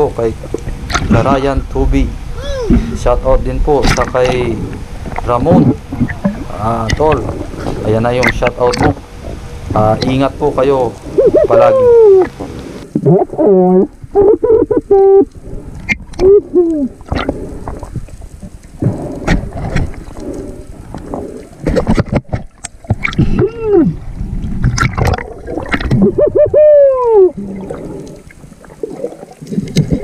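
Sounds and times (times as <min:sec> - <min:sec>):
water sloshing: 0:00.0 - 0:13.0, 0:15.6 - 0:26.5, 0:27.2 - 0:30.0
muffled underwater vocal hoots: 0:11.1 - 0:15.3, 0:16.2 - 0:17.3, 0:25.9 - 0:27.9.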